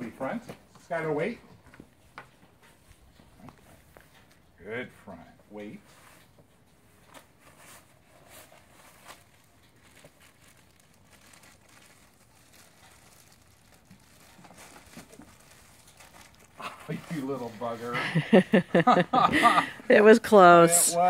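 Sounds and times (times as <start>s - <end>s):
plastic bag crinkling: 8.4s - 17.9s.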